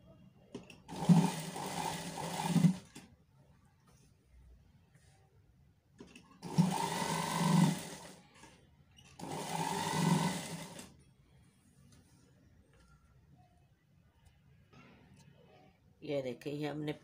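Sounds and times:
sewing machine stitching: 0.6 - 3.1, 6.4 - 8.2, 9.2 - 10.9.

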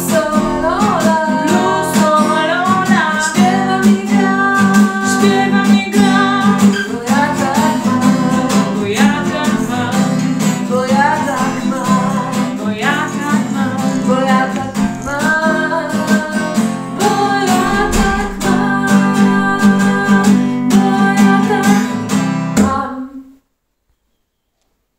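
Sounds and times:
acoustic guitar strumming: 0.0 - 22.6
women singing: 0.0 - 23.3.

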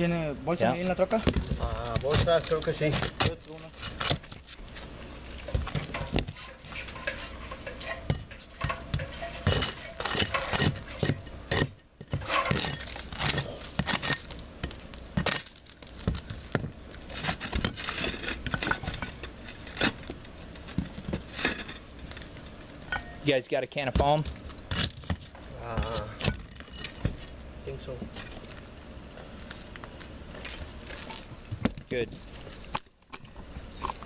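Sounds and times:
steel bar scraping and clinking: 5.9 - 14.4, 26.2 - 27.4.

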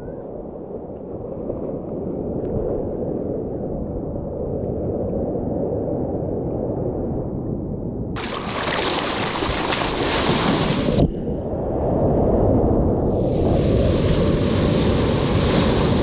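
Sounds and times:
loud splashing and spray: 8.2 - 11.1, 13.1 - 16.0
muffled water churning: 8.2 - 12.3.

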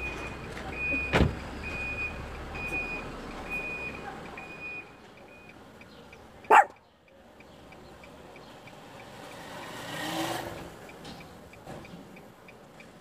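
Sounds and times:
truck reversing alarm beeping: 0.0 - 6.8.

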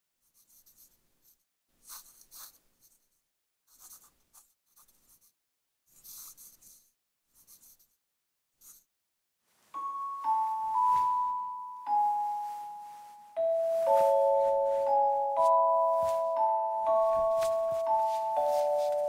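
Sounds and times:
pencil sketching on paper: 0.2 - 8.0, 8.6 - 8.9.

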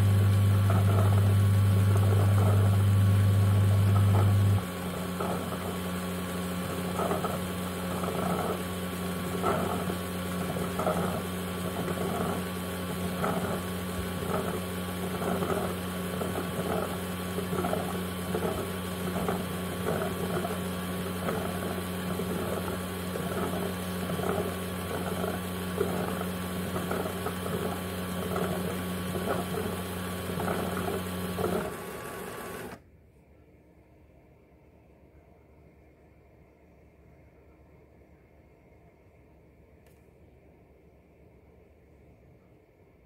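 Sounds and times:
motor hum with churning pulse: 0.0 - 32.8.

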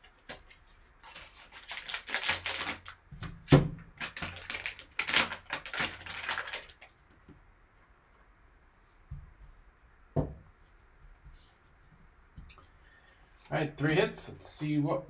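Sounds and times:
foil wrapper tearing and crumpling: 1.0 - 3.0, 4.0 - 7.0.

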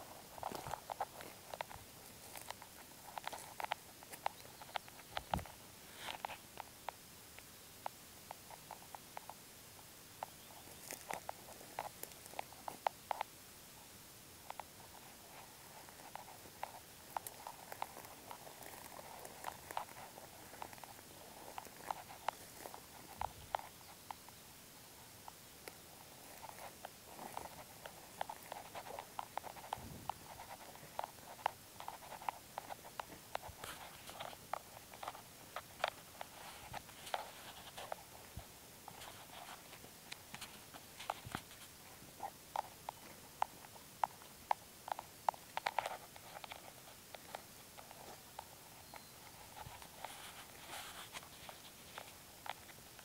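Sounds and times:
footsteps through grass: 15.1 - 24.4.

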